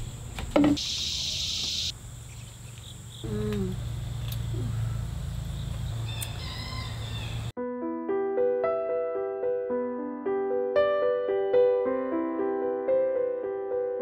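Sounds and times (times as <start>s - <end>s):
insects buzzing: 0.0s - 7.5s.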